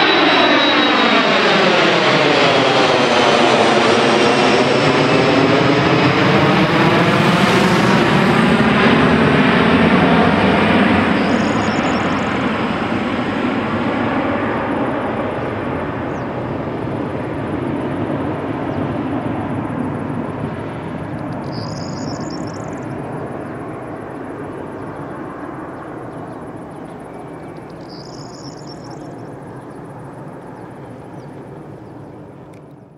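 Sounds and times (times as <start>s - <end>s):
jet engine roar: 0.0s - 32.9s.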